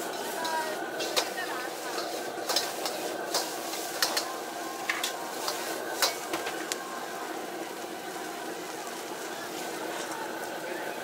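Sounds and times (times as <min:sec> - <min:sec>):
metal ladle scraping a wok: 0:00.0 - 0:06.4
food sizzling: 0:00.0 - 0:11.0.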